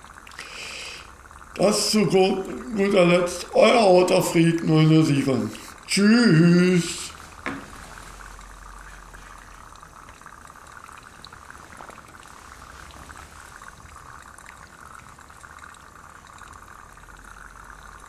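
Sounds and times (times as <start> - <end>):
water heating with low hiss: 0.0 - 18.0
faint ticks and crackles: 7.0 - 18.0.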